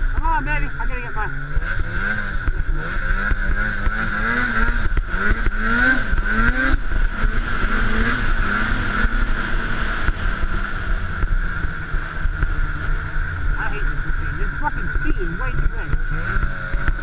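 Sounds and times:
snowmobile engine revving: 0.0 - 17.0.

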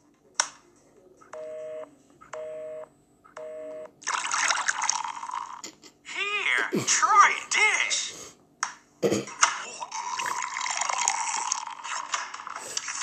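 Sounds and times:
beer pouring and splashing: 4.0 - 5.6, 9.9 - 12.0.

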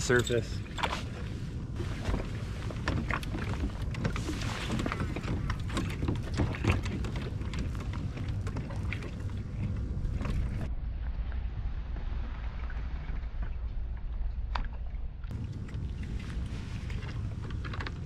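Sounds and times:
low rumble: 0.0 - 18.0
water slapping plastic hull: 1.8 - 11.1.

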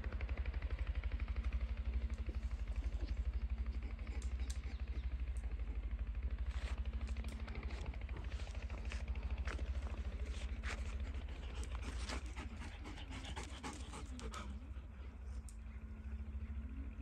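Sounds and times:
puppy panting: 2.2 - 15.4.

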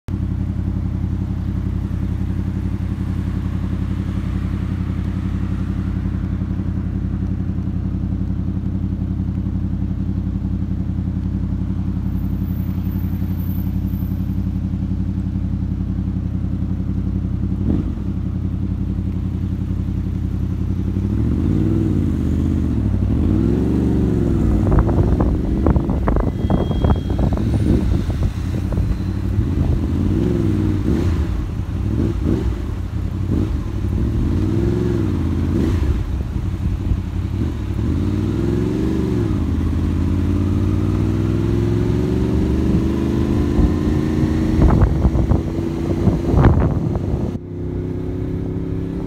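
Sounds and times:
motorcycle engine running: 0.1 - 49.0
wind buffeting microphone: 24.0 - 31.3, 42.8 - 47.4.

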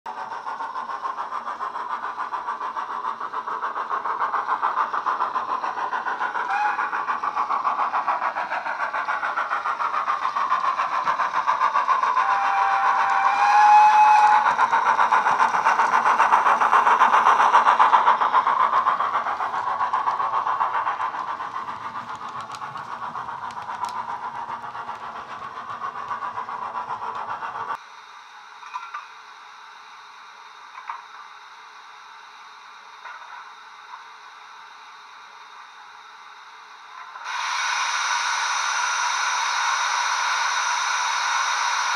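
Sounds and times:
steam engine chuffing: 0.1 - 27.8, 37.0 - 41.9
steam whistle: 6.4 - 7.2, 12.0 - 15.6.

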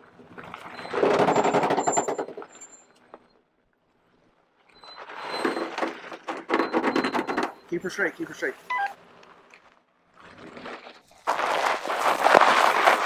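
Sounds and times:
off-road vehicle engine pulsing: 6.4 - 13.0.

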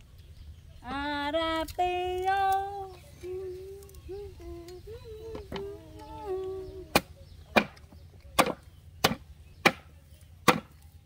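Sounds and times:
person humming a tune: 0.9 - 7.0
cleaver chopping on wooden board: 8.4 - 10.8.

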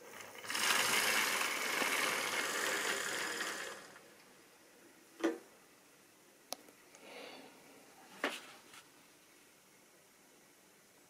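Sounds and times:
model train running on track: 0.0 - 4.0.

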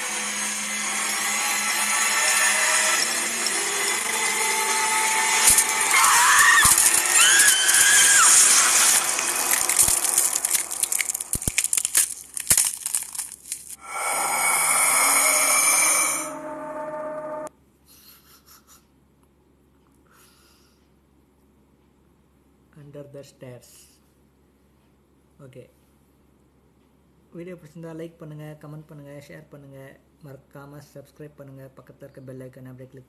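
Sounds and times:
harsh scraping grinding noise: 0.0 - 17.5
rapid sharp clicks: 6.6 - 13.8
held tone: 13.8 - 17.5.

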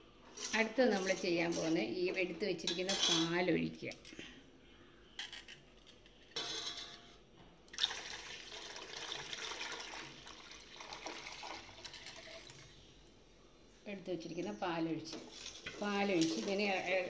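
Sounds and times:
milk pouring into pot: 7.7 - 12.8.

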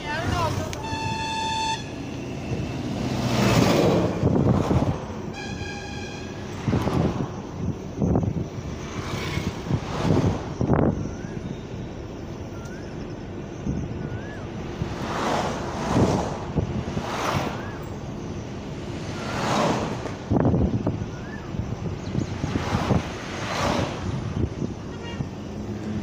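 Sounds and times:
wind and road noise from car: 0.0 - 26.0.

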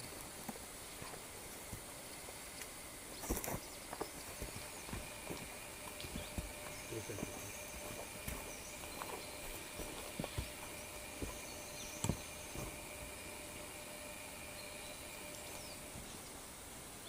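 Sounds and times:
footsteps on dirt trail: 3.1 - 16.1
steady high-pitched drone: 4.2 - 16.2.

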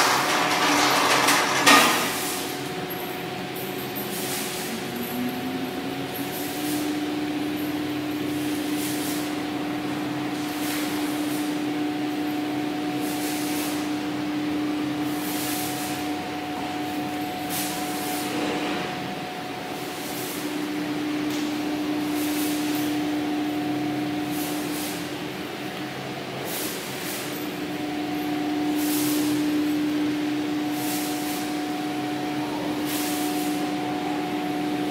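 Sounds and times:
diesel generator engine running: 0.0 - 13.1
radiator fan rushing: 0.0 - 34.9.

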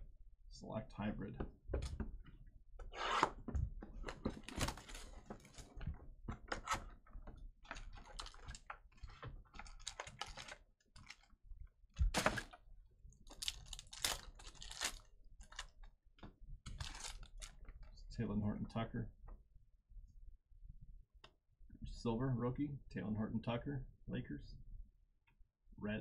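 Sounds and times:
card packs tearing and rustling: 4.1 - 5.8, 7.7 - 11.3, 12.0 - 12.6, 13.2 - 15.7, 16.7 - 17.6.

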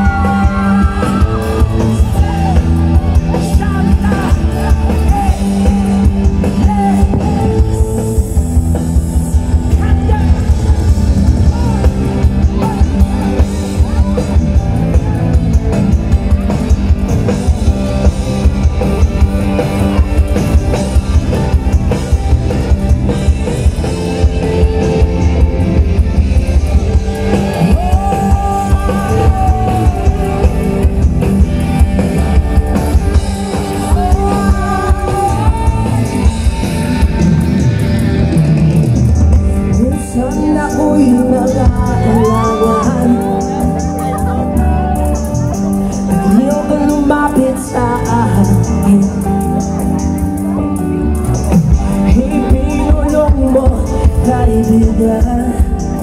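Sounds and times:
live rock band: 0.0 - 56.0
person singing: 27.1 - 31.6, 33.3 - 37.8, 39.5 - 49.8, 51.5 - 56.0.

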